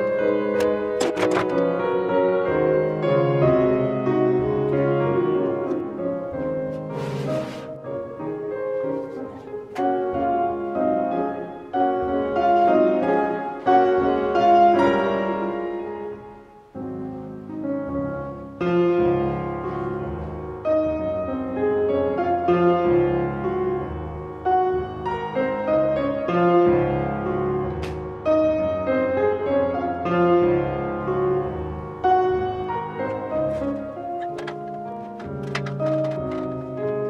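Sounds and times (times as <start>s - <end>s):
slow classical piano piece: 0.0s - 37.0s.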